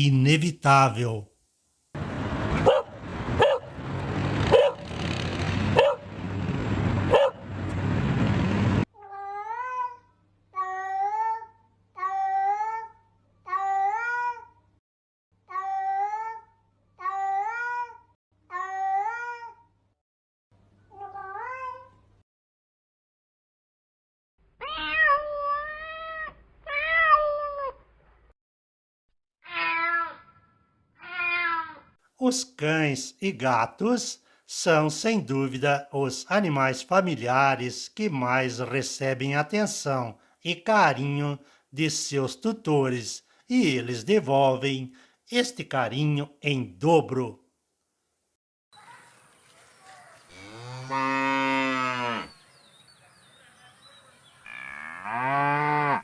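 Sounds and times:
dog barking: 2.6 - 3.7, 4.5 - 4.9, 5.8 - 6.1, 7.1 - 7.4, 48.8 - 50.3
cat meowing: 24.6 - 27.8, 29.4 - 31.9.

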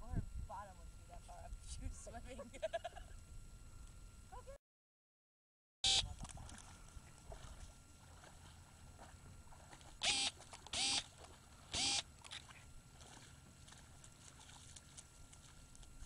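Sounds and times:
water noise: 5.9 - 16.0.

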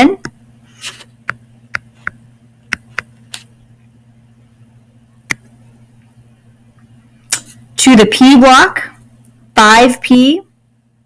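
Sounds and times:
low electrical hum: 0.0 - 11.0
stylus tapping on tablet screen: 1.2 - 3.1.

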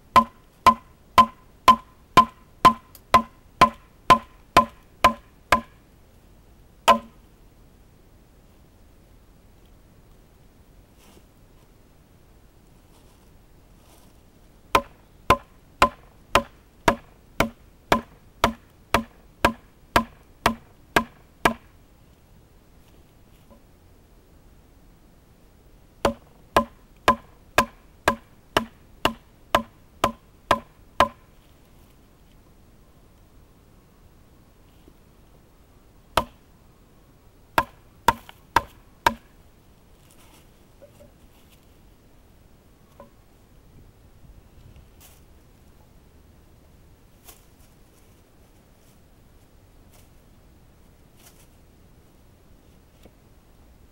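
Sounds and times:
knife chopping wooden stick: 0.2 - 5.7, 6.9 - 7.1, 14.8 - 21.6, 26.1 - 31.2.

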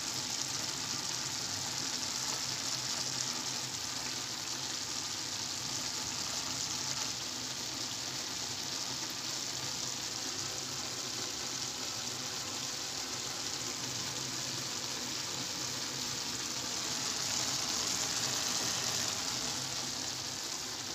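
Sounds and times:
rice sizzling in a pan: 0.0 - 20.9.

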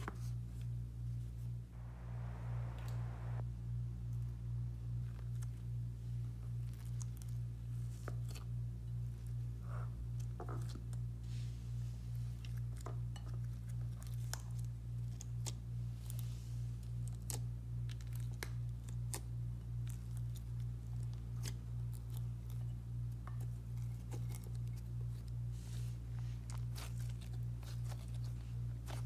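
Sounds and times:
pulsing low hum: 1.7 - 6.5.

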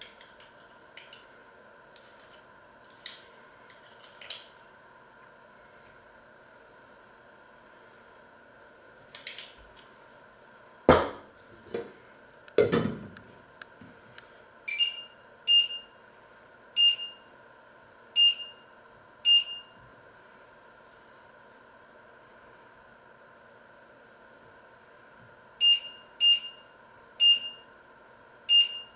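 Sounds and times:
short beeps from hob controls: 14.7 - 16.0, 16.8 - 17.3, 18.2 - 19.8, 25.6 - 27.7, 28.5 - 28.9.

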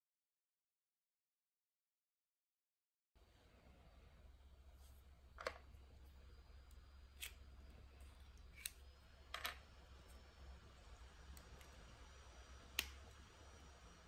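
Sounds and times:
faint low hum: 3.2 - 14.0.

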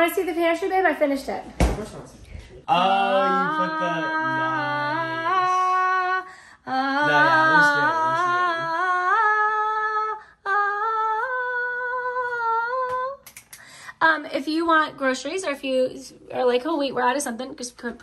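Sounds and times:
person singing long notes: 2.8 - 13.2.

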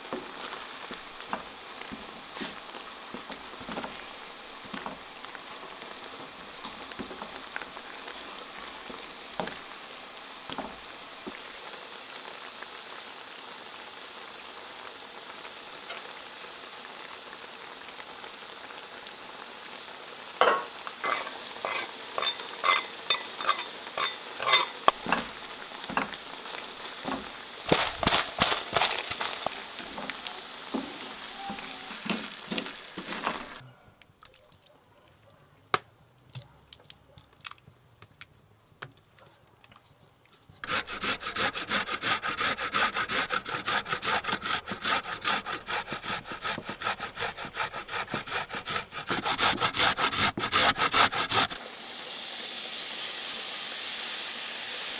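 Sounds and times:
sauce sizzling in a frying pan: 0.0 - 33.6, 50.4 - 54.9
wooden spoon scraping a pan: 0.2 - 5.1, 20.5 - 33.6, 40.3 - 51.6
beetroot grated on metal grater: 21.0 - 25.3, 27.7 - 29.5.

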